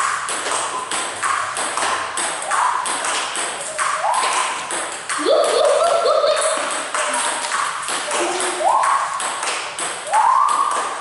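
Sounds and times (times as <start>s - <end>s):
table tennis balls clicking: 0.0s - 11.0s.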